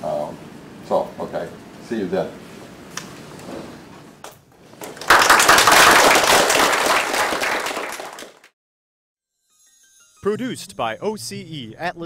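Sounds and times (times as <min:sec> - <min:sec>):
audience applauding: 0:04.8 - 0:08.5.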